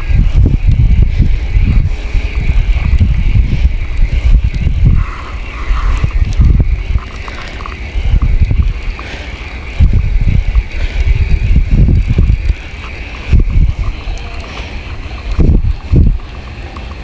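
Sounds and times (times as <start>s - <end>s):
fishing reel whirring: 0.0s - 17.0s
wind buffeting microphone: 0.0s - 17.0s.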